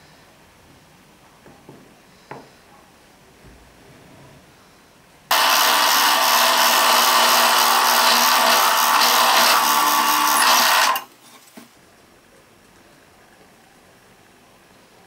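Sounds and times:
electric drill boring into wood: 5.3s - 11.1s.

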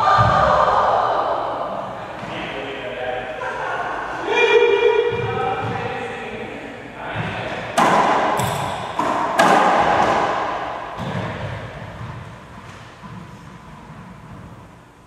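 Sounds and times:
racquetball smacks echoing: 7.2s - 14.5s.

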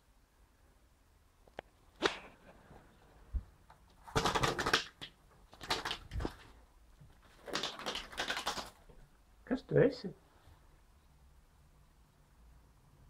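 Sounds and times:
bird wings beating on glass: 4.0s - 6.5s, 7.3s - 8.9s.

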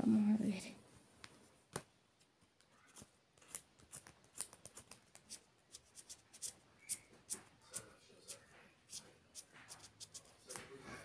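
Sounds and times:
scratch card being scratched: 2.7s - 10.6s.

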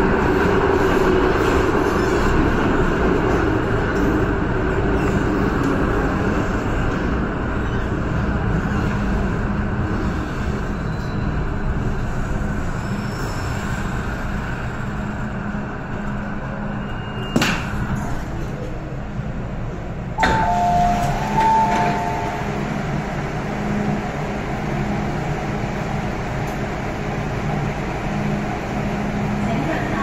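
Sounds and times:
train rumble and motor hum: 0.0s - 30.0s
train doors opening: 16.7s - 18.8s, 20.1s - 23.9s
two-tone door chime: 20.2s - 22.6s.

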